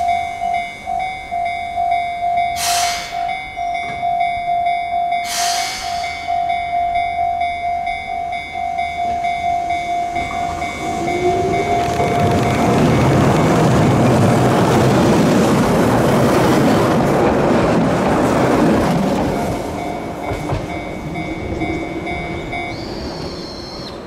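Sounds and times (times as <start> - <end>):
level crossing alarm dinging: 0.0 - 13.8, 19.2 - 23.8
train air release hiss: 2.6 - 3.4, 5.2 - 6.4
train motor whine: 9.0 - 14.3.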